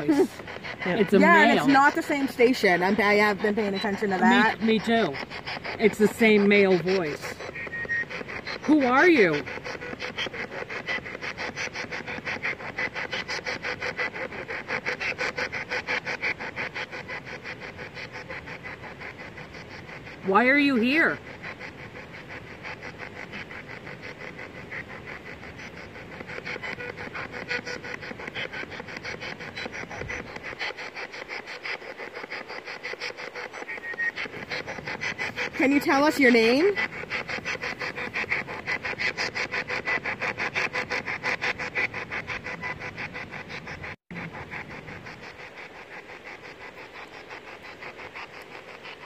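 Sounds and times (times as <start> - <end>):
radio static in short bursts: 0.0 - 11.4
choppy radio static bursts: 0.0 - 49.0.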